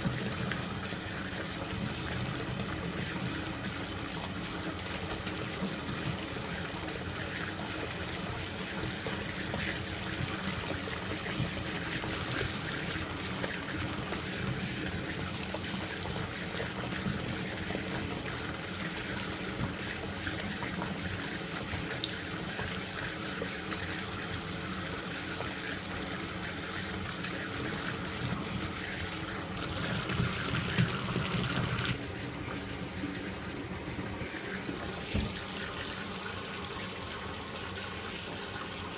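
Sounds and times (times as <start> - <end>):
tap water splashing into tub: 34.7 - 36.0.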